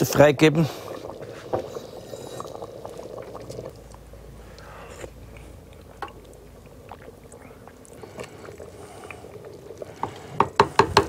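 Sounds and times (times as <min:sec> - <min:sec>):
stew bubbling: 0:00.0 - 0:11.0.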